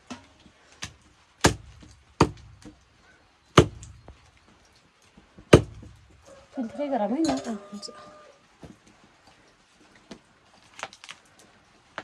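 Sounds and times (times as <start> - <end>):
knife chopping on wooden block: 5.5 - 5.9.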